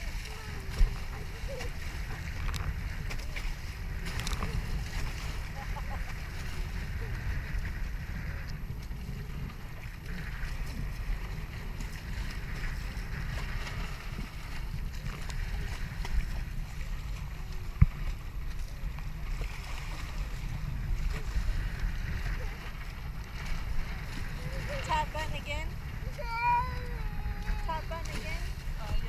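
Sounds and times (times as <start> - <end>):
water splashing along hulls: 0.0 - 29.0
wind buffeting microphone: 0.0 - 29.0.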